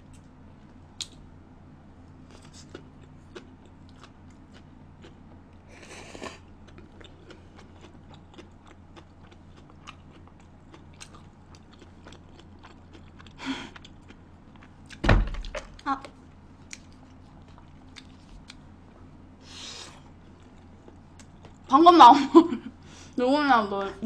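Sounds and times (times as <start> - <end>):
chewing: 2.2 - 18.7, 20.0 - 21.7.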